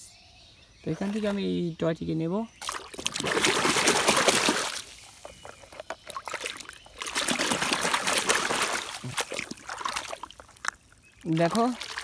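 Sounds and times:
water splashing and sloshing: 0.9 - 1.5, 2.6 - 12.0.

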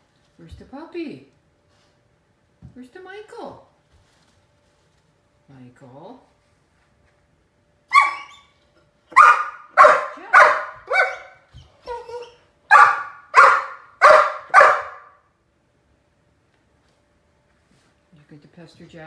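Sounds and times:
puppy barking: 7.9 - 8.5, 9.1 - 15.2.

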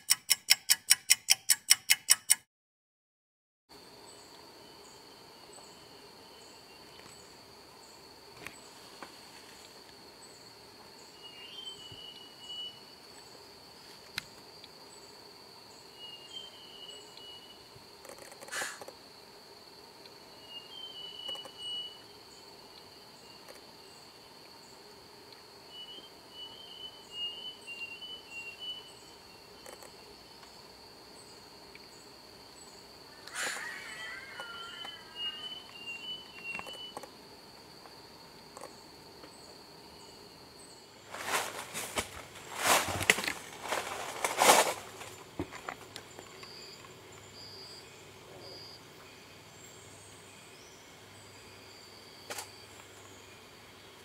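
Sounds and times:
high insect drone: 3.7 - 54.0
birds chirping: 32.0 - 37.0.

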